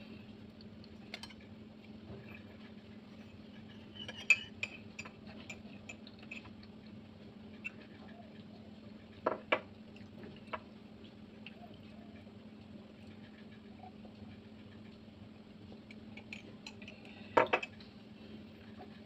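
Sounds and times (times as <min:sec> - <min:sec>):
steady low hum: 0:00.0 - 0:19.0
utensils clinking on plate: 0:03.9 - 0:06.5.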